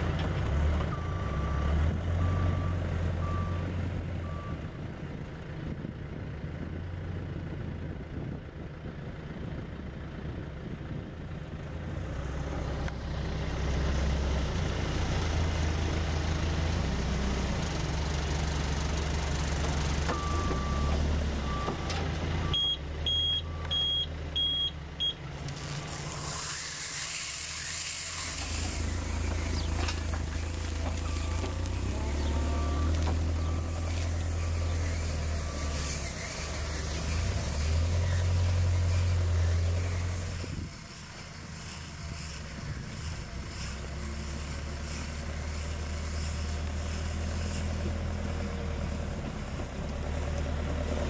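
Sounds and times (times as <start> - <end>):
diesel engine running: 0.0 - 51.0
reversing alarm beeping: 20.1 - 25.2, 30.7 - 36.8
hiss: 25.5 - 51.0.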